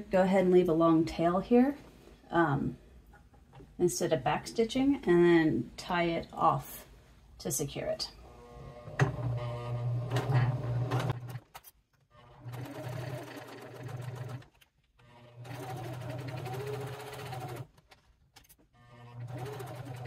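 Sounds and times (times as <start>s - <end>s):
electric sewing machine stitching: 8.3s - 11.4s, 12.2s - 17.7s, 18.9s - 20.0s.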